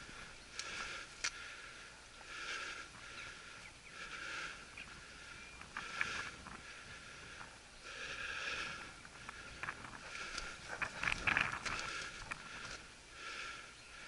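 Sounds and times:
snaps and crackles of brush: 0.0s - 1.4s, 9.0s - 12.9s.

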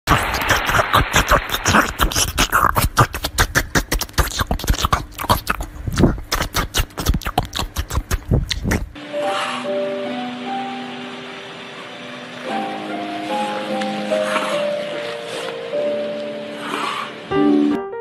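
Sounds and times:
dog chewing watermelon: 0.1s - 9.0s.

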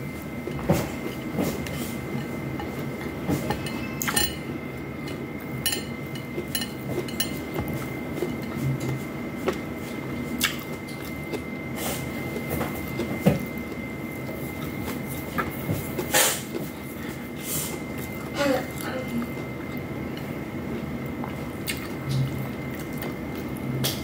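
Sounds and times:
chewing and mouth sounds: 5.8s - 17.2s, 17.8s - 24.0s.

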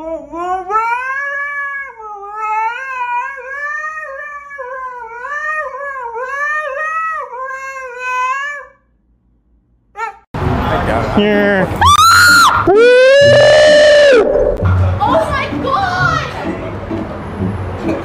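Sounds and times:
husky howling: 12.0s - 14.6s.

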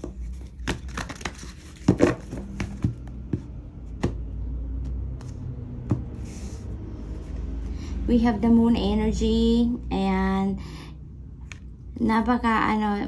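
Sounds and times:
cards clicking and tapping on table: 0.0s - 6.1s.

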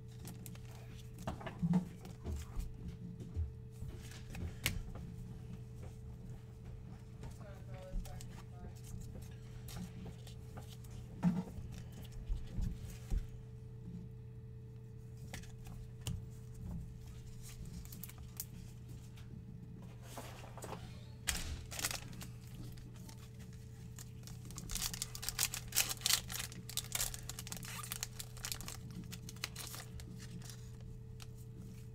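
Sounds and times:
plastic wrapping rustling: 0.0s - 1.4s, 17.0s - 18.8s, 20.0s - 31.9s
low electrical hum: 0.0s - 31.9s
cards tapping and rustling: 7.3s - 13.3s, 15.2s - 18.6s, 21.3s - 31.9s.

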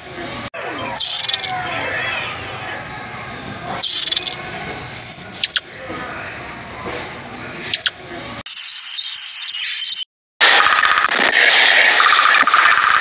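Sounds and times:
animal chirps and squeaks: 0.8s - 1.6s, 3.8s - 5.6s, 7.7s - 8.0s.

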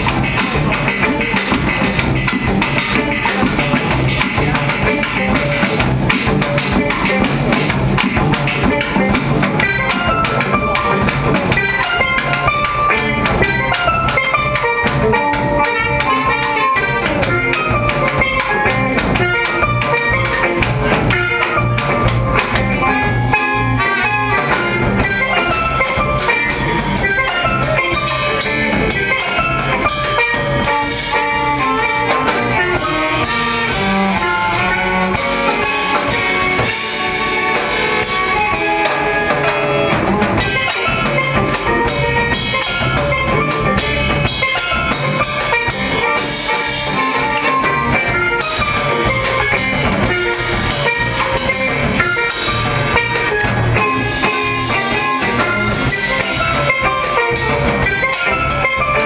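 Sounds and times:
bass line: 0.0s - 59.0s
drum kit: 0.0s - 59.0s
guitar: 0.0s - 59.0s
steel pans playing melody: 0.0s - 59.0s.

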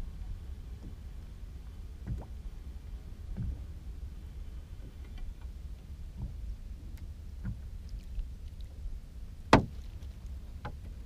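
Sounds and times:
steady low rumble: 0.0s - 11.0s
knocks on a boat: 2.0s - 2.4s, 3.3s - 3.6s, 9.5s - 9.9s.

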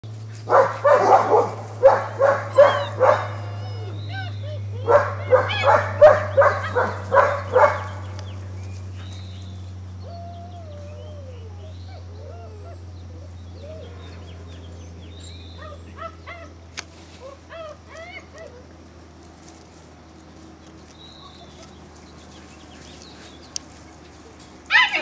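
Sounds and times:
puppies barking: 0.4s - 19.2s, 20.0s - 25.0s
puppies whining and yipping: 2.1s - 7.8s, 10.0s - 16.6s, 17.2s - 18.8s, 21.0s - 23.5s.

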